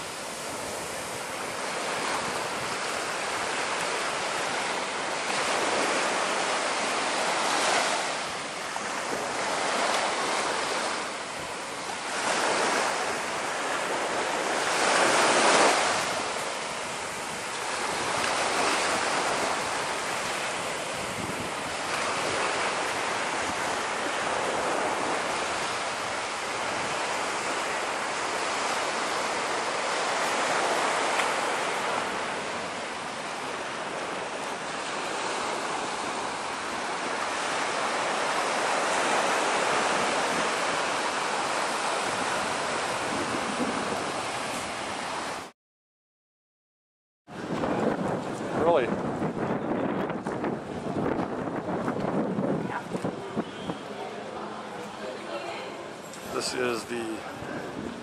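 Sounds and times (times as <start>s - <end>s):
sea waves washing on beach: 0.0s - 45.5s, 47.3s - 58.0s
wind buffeting microphone: 8.8s - 27.6s, 28.6s - 45.4s, 47.3s - 54.9s, 57.2s - 58.0s.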